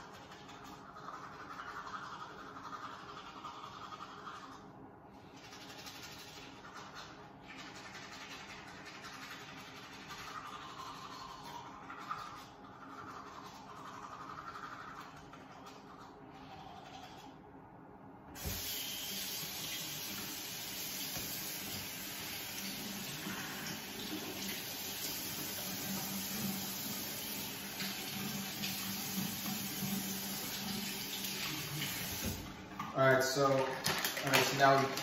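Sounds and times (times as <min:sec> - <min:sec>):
toothbrush scrubbing: 0:00.0 - 0:17.4
faucet water running into sink: 0:18.4 - 0:35.0.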